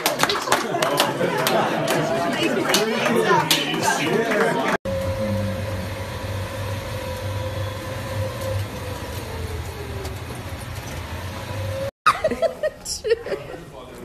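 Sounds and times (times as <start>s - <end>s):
thin steady whine: 4.9s - 11.9s
cart running hum: 4.9s - 12.6s.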